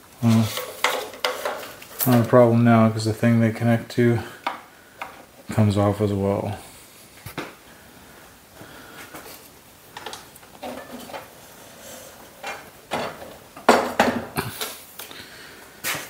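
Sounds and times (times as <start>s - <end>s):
metal clunks and clatter: 10.0s - 11.3s, 12.4s - 14.4s.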